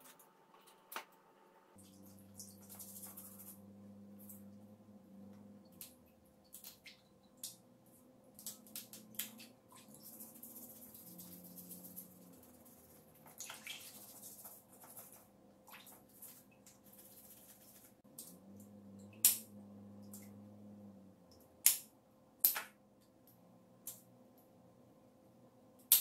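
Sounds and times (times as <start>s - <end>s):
brush scratching crab shell: 2.5s - 3.6s, 9.8s - 15.3s, 16.1s - 18.0s.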